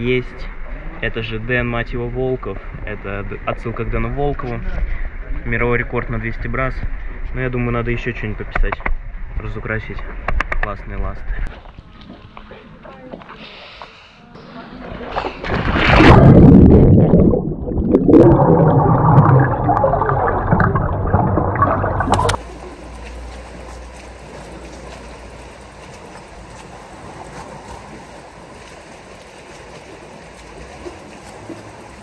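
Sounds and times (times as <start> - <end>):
water gurgling in tube: 15.1 - 22.5.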